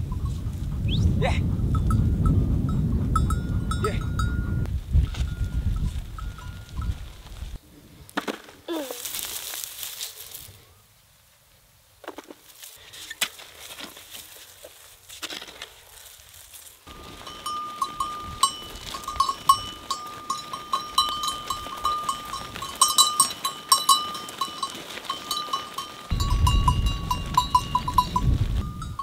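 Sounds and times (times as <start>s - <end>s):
sheep bells jangling: 1.7s - 7.6s, 16.8s - 29.0s
hoe chopping and scraping soil: 8.1s - 10.4s, 12.0s - 17.4s.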